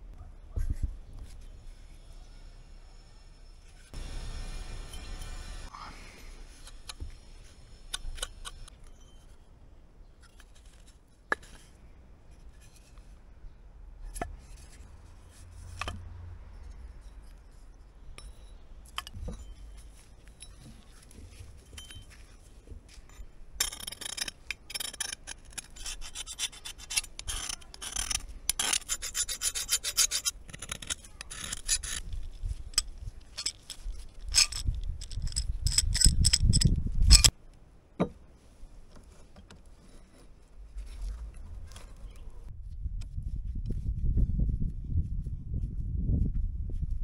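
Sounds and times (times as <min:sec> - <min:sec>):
steel tool scraping metal: 0:01.7 - 0:09.4, 0:23.0 - 0:37.3.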